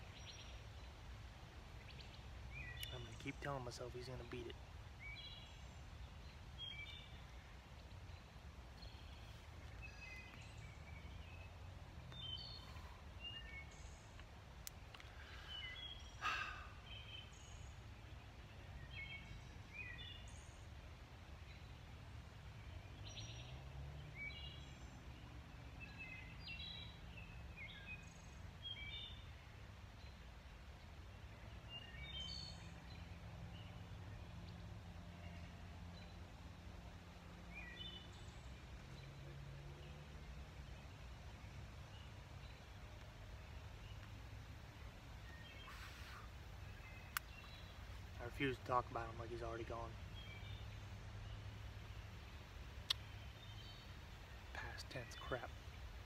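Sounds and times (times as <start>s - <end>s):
woodland birdsong: 0.0s - 56.0s.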